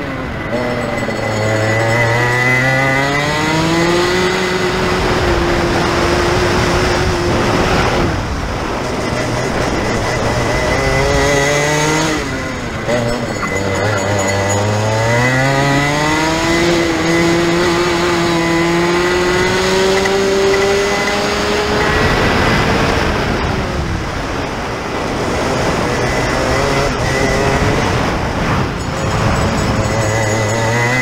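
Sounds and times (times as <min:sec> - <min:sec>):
kart engine revving: 0:00.0 - 0:31.0.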